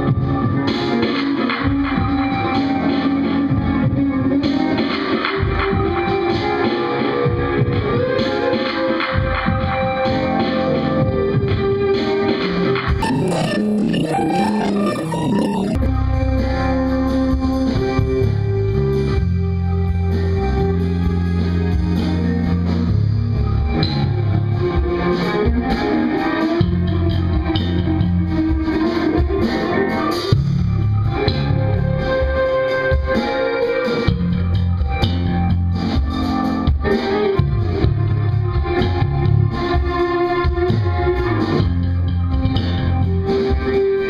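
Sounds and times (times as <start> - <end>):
electric guitar: 0.0 - 44.0
keyboard: 0.0 - 44.0
electric bass: 13.0 - 33.2, 34.0 - 43.8.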